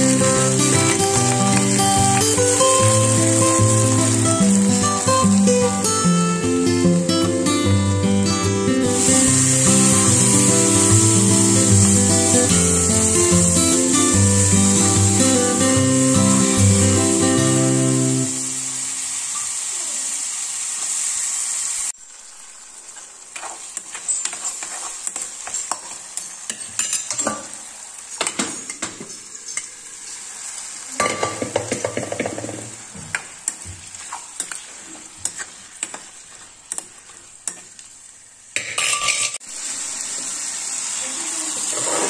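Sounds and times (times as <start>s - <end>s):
food sizzling in oil: 0.0s - 42.0s
spoon scraping metal pan: 23.4s - 27.2s, 38.6s - 39.4s.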